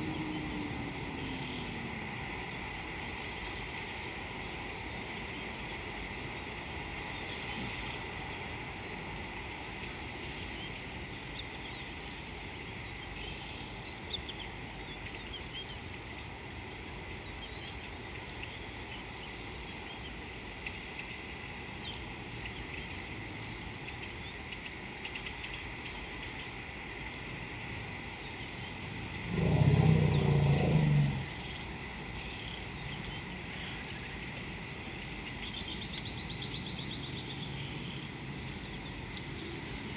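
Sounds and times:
insects chirping: 0.0 - 39.9
low rumbling: 28.9 - 31.5.

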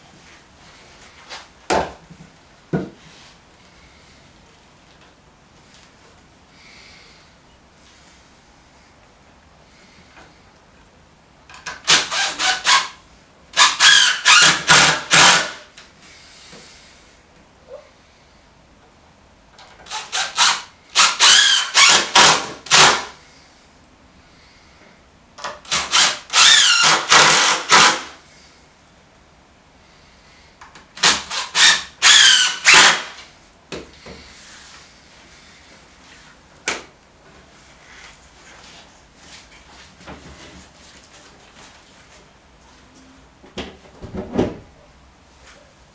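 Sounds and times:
impact driver driving screws: 11.6 - 13.0, 13.6 - 15.6, 19.8 - 23.1, 25.4 - 28.1, 31.0 - 33.2.

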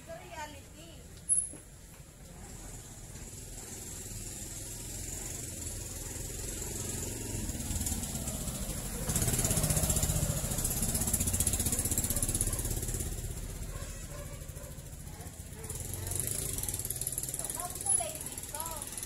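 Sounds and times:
small engine pulsing: 2.6 - 19.0.

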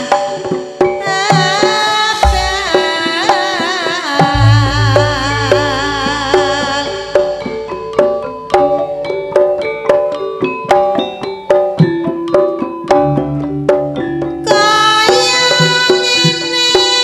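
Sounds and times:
drums: 0.0 - 17.0
plucked or struck melody: 2.1 - 3.3, 4.2 - 15.6
held melodic line: 4.3 - 10.4.

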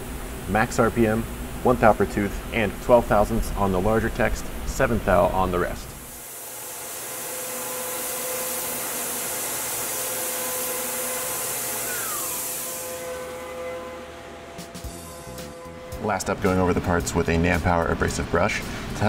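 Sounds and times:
mill spindle whine: 0.0 - 19.0
air nozzle hiss: 6.0 - 13.4.

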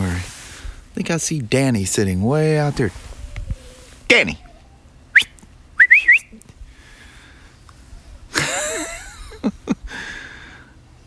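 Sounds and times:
person calling out: 4.1 - 4.5
person whistling: 5.1 - 6.4.

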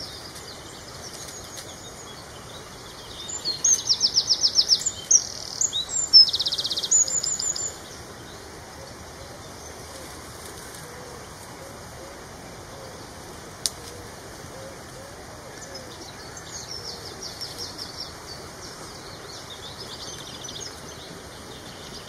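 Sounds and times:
songbird singing with trill: 0.0 - 10.0, 14.5 - 22.0.

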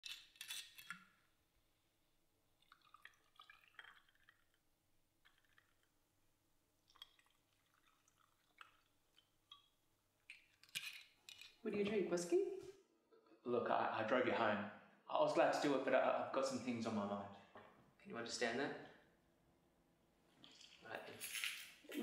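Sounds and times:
liquid dripping: 2.5 - 11.6.

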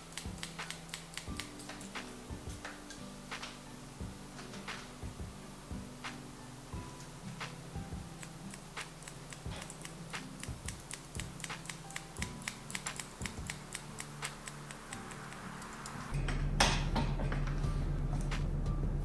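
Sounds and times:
scissors snipping hair: 0.0 - 3.6, 7.4 - 16.2.

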